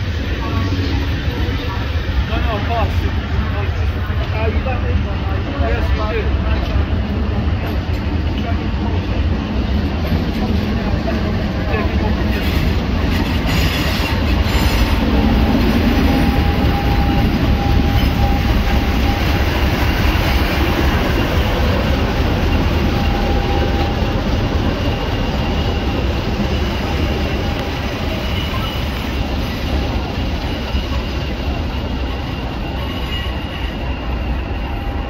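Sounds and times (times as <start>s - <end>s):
diesel locomotive engine rumble: 0.0s - 35.0s
train coaches rolling past: 0.0s - 35.0s
wheels squealing: 10.0s - 35.0s.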